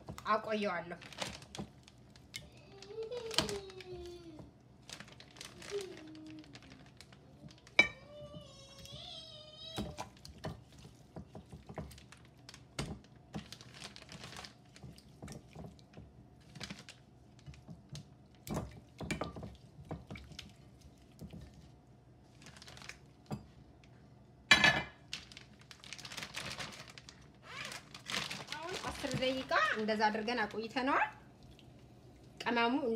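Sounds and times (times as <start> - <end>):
plastic bag rustling: 0.0 - 17.8, 21.2 - 23.3, 25.0 - 30.7
hands working chicken in marinade: 1.1 - 24.2.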